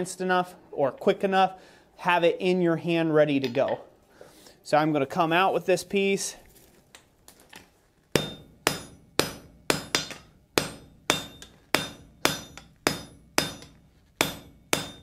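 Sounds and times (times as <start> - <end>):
hammer ringing on anvil: 8.2 - 15.0.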